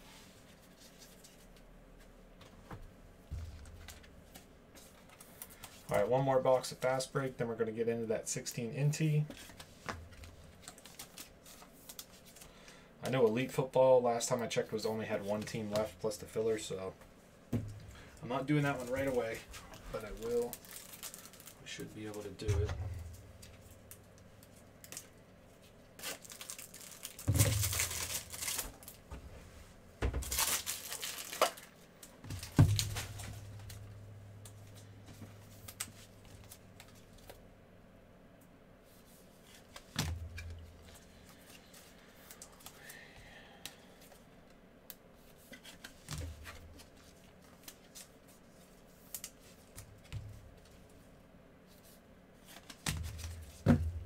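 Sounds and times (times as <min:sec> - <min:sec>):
wrappers crinkling: 0:18.6 - 0:22.4, 0:26.0 - 0:29.1, 0:30.2 - 0:33.8
card packs torn open: 0:20.1 - 0:21.6, 0:26.0 - 0:29.0, 0:30.2 - 0:31.8.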